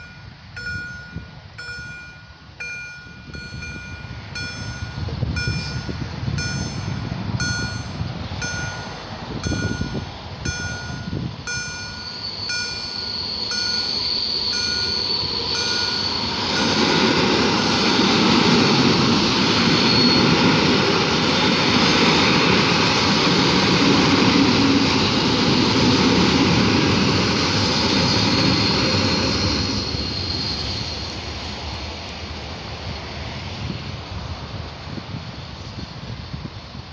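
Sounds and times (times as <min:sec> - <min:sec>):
level crossing warning bells beeping: 0:00.0 - 0:30.6
train wheels on rails: 0:00.0 - 0:36.9.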